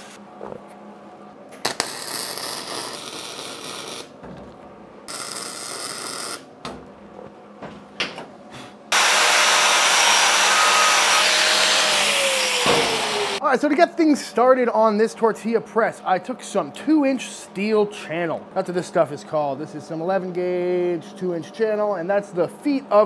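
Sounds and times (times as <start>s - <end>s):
welder crackling on steel: 1.6s - 4.2s, 5.1s - 6.5s
angle grinder on steel: 8.9s - 13.4s.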